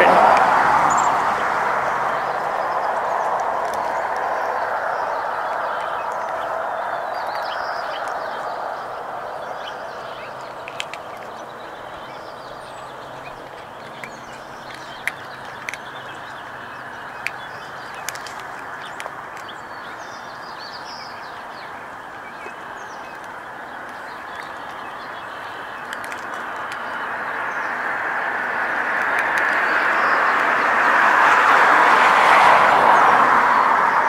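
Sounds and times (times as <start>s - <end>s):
small birds chirping: 0.0s - 34.0s
steady background noise: 0.0s - 34.0s
cat crunching dry treats: 2.9s - 4.3s, 10.3s - 20.0s, 22.5s - 27.3s, 28.4s - 32.4s.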